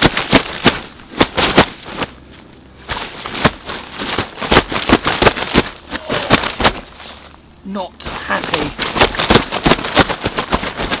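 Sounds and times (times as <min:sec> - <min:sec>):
fish slapping against fabric sling: 0:00.0 - 0:07.3, 0:08.0 - 0:11.0.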